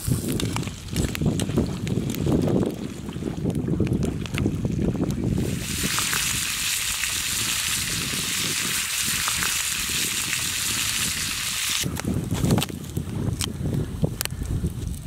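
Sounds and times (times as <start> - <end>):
potatoes sizzling in a frying pan: 5.4 - 11.8.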